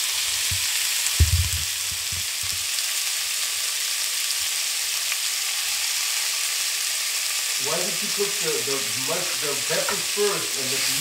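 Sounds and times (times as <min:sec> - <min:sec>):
meat sizzling in hot oil: 0:00.0 - 0:11.0
low thumps: 0:01.2 - 0:02.3.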